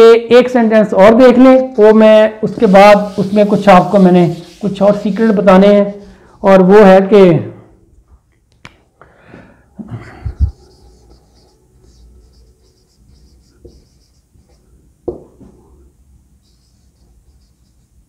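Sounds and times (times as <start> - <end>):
marker squeaking on whiteboard: 1.7 - 6.1, 10.3 - 14.6, 16.4 - 18.0.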